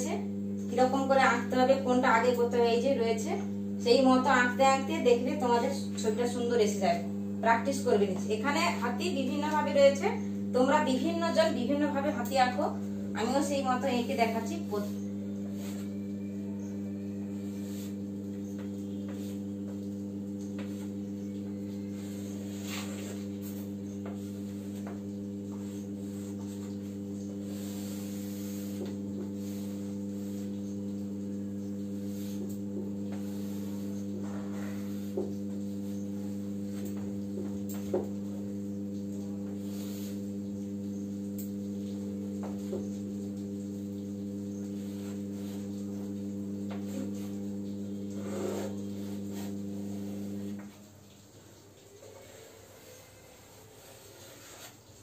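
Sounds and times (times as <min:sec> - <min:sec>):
electrical mains hum: 0:00.0 - 0:55.0
chalk scratching on blackboard: 0:53.8 - 0:54.8.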